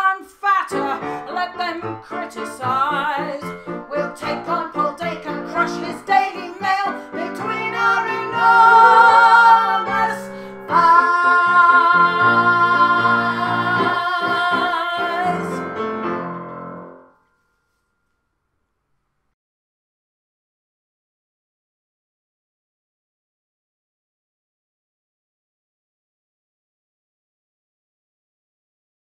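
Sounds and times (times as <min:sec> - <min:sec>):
women singing: 0:00.0 - 0:15.7
piano: 0:00.0 - 0:17.6.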